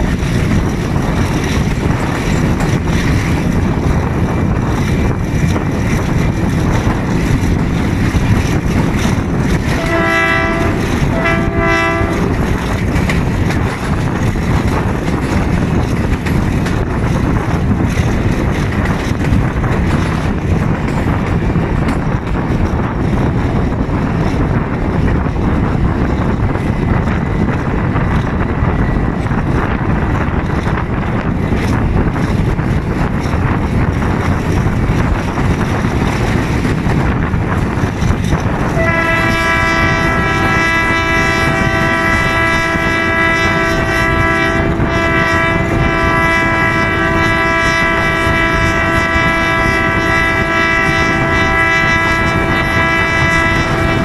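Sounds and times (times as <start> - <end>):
diesel locomotive engine: 0.0 - 54.0
wheels on rails: 0.0 - 54.0
wind rushing: 0.0 - 54.0
locomotive horn blasts: 9.6 - 12.8, 38.6 - 54.0.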